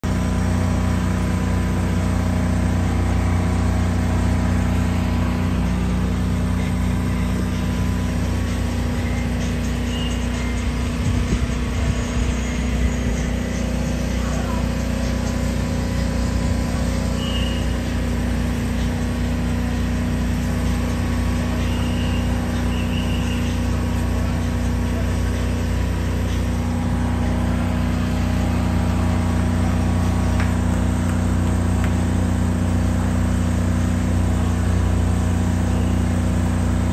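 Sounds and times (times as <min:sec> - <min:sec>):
traffic engine hum: 0:00.0 - 0:36.9
faint high chirps: 0:08.9 - 0:10.7, 0:17.1 - 0:17.9, 0:21.4 - 0:23.9.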